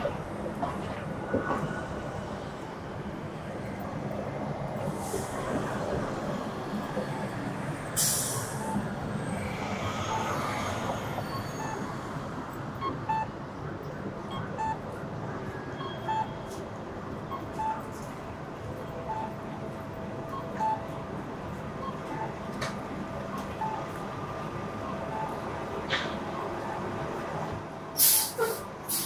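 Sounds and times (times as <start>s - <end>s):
street traffic: 0.0s - 29.0s
faint short beeps: 15.7s - 16.6s, 19.0s - 19.4s, 20.2s - 21.0s
short sharp hiss: 28.0s - 29.0s.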